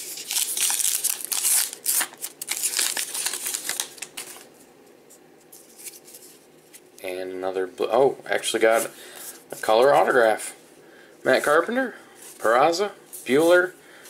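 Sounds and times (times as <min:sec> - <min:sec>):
cards flipping and rustling: 0:00.0 - 0:04.5, 0:05.5 - 0:06.8.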